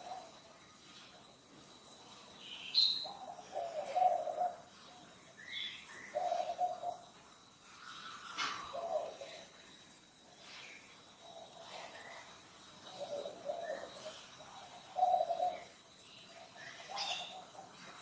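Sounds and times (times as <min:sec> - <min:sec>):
dove cooing: 0:00.0 - 0:01.1, 0:02.8 - 0:07.1, 0:07.8 - 0:09.6, 0:11.2 - 0:18.0.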